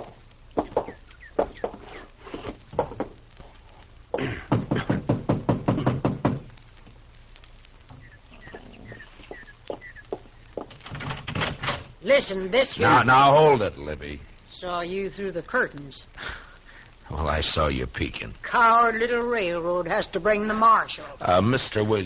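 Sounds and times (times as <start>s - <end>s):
high chirps: 0.0s - 2.2s, 7.9s - 10.6s
knocks and clomps: 0.0s - 3.3s, 4.1s - 7.0s, 9.6s - 12.0s
rapid knocking and clatter: 2.7s - 3.2s, 4.2s - 6.5s, 10.1s - 11.9s.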